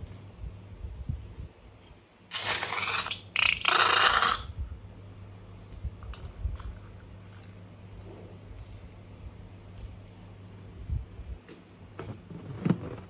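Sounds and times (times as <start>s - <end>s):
crackly hissing slime noise: 2.3s - 4.5s.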